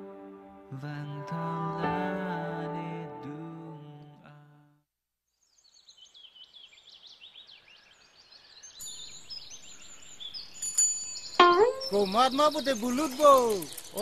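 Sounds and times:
music: 0.0s - 4.7s, 11.4s - 12.0s
faint outdoor ambience: 7.6s - 14.0s
high-pitched bird chirps: 8.8s - 14.0s.

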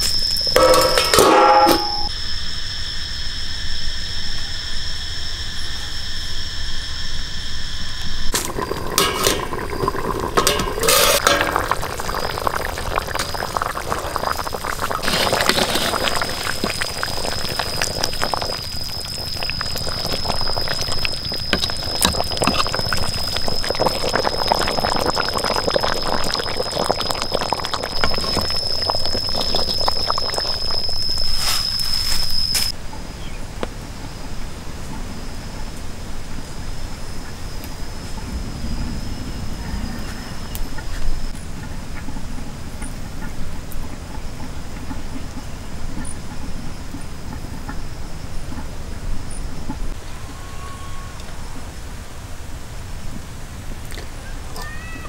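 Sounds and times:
metal ladle clinking on pot: 0.6s - 2.1s, 10.4s - 11.6s
liquid bubbling in a pot: 8.2s - 32.7s
high insect buzz: 15.0s - 32.7s.

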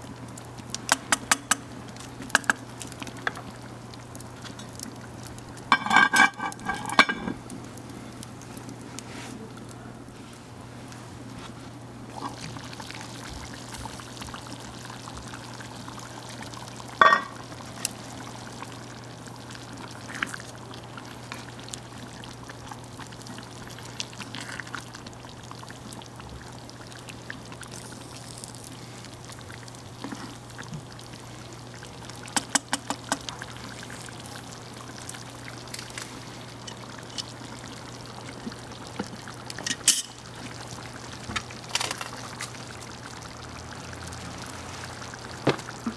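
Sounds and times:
curry simmering and bubbling: 0.0s - 45.9s.

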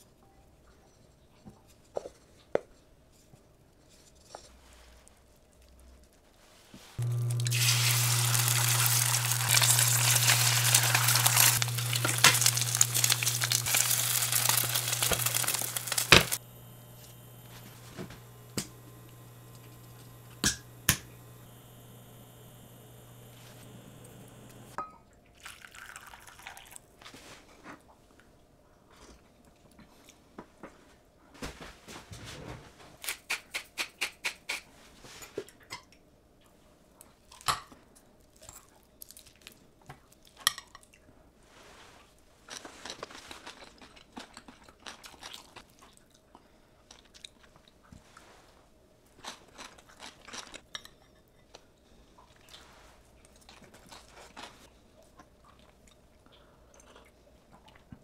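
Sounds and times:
chewing and crunching: 7.0s - 20.3s, 38.3s - 41.1s, 42.4s - 48.3s, 49.0s - 58.0s.

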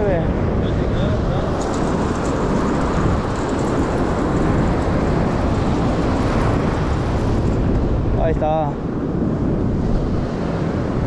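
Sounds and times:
ocean surf: 0.0s - 11.0s
wind on microphone: 0.0s - 11.0s.

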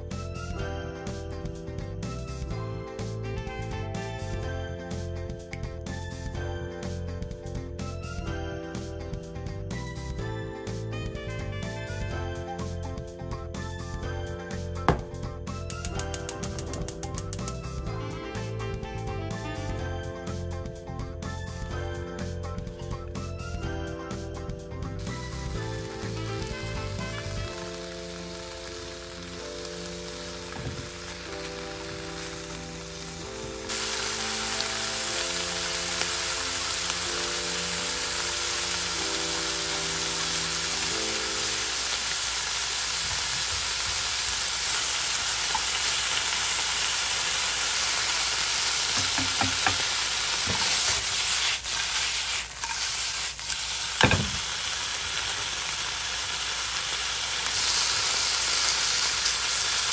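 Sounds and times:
light background music: 0.0s - 42.6s, 44.4s - 51.8s
meat sizzling in a frying pan: 25.0s - 59.9s.

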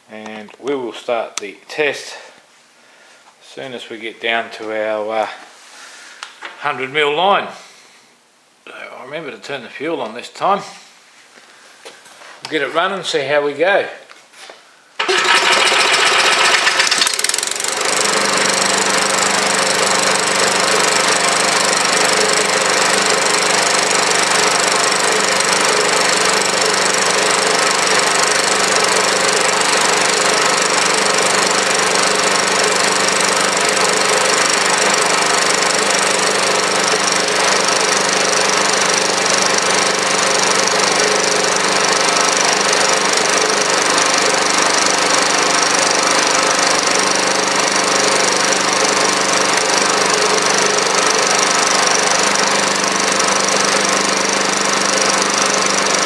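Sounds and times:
small engine starting and running: 15.0s - 56.0s.

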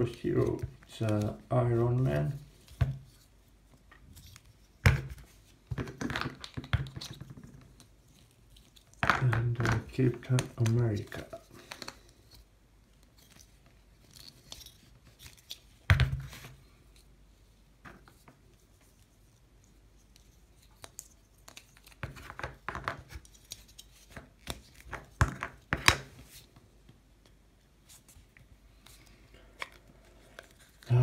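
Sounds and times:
plastic cans clicking and scraping: 5.7s - 7.7s.

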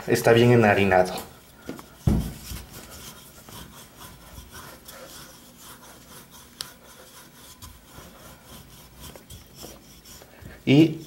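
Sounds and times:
rolling pin rubbing on dough: 0.1s - 11.0s.

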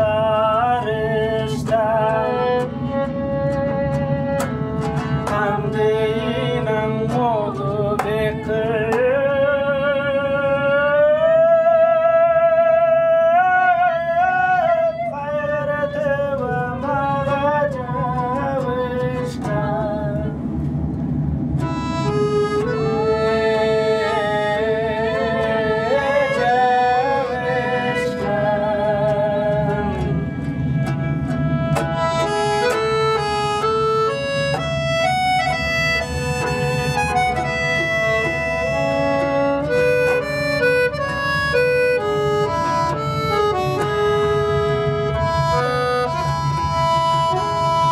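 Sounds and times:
accordion chords: 0.0s - 10.7s, 15.3s - 47.9s
bowed violin: 0.0s - 12.0s, 13.6s - 47.9s
person singing: 0.0s - 20.4s, 22.6s - 30.2s
plucked string instrument: 0.0s - 47.9s.

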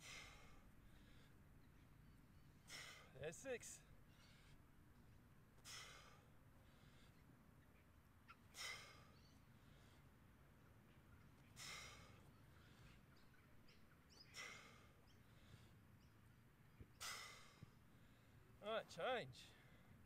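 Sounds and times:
man exhaling forcefully: 0.0s - 0.6s, 2.7s - 3.1s, 5.6s - 6.2s, 8.6s - 9.1s, 11.6s - 12.2s, 14.4s - 14.9s, 17.0s - 17.6s.

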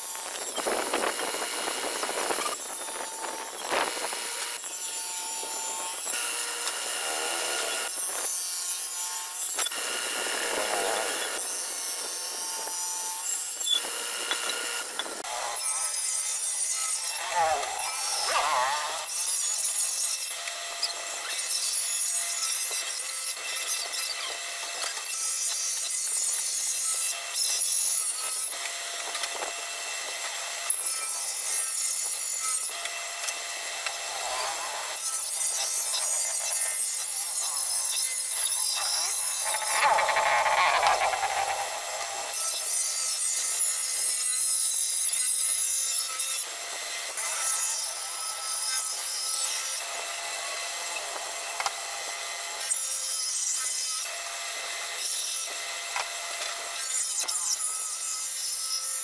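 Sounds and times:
planer cutting wood hiss: 0.0s - 59.0s
motor whine: 0.1s - 8.3s, 9.6s - 15.6s.

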